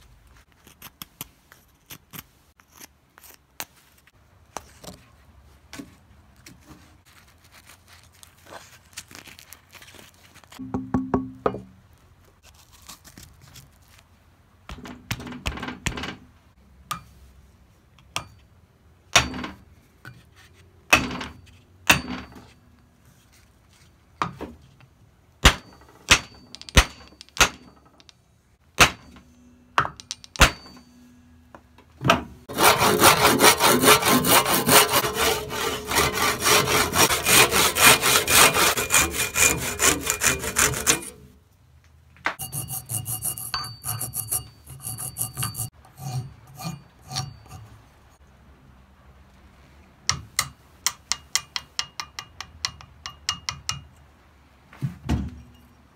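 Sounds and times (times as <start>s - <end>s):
sharp knocks and clicks: 10.6s - 11.8s
handsaw sawing wood: 32.5s - 41.2s.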